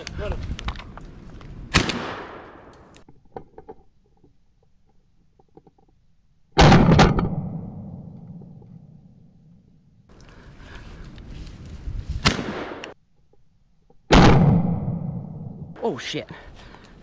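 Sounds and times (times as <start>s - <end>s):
shotgun blasts with echo: 1.7s - 2.7s, 12.2s - 13.0s.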